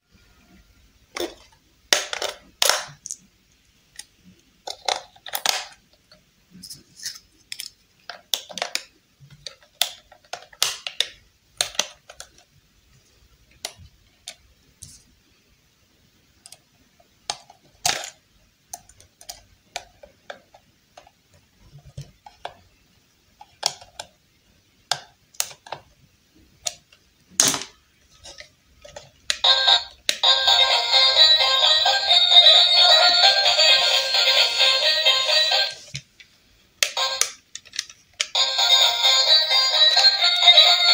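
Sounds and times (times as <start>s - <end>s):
music: 29.4s - 35.8s, 38.4s - 40.9s.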